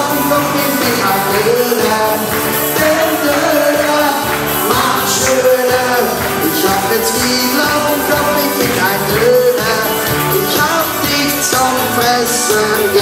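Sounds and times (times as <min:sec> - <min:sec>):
pop party music with singing: 0:00.0 - 0:13.0.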